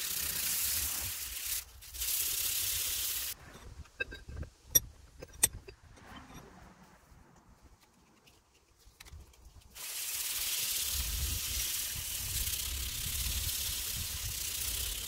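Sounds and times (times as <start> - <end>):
sandpaper scraping on steel: 0.0 - 3.4, 9.8 - 15.0.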